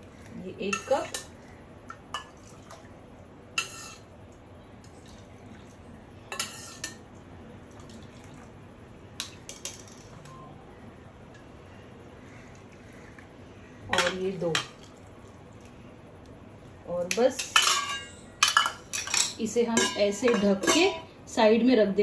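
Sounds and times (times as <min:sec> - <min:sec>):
steel ladle clinking on pot: 0:17.4 - 0:21.0.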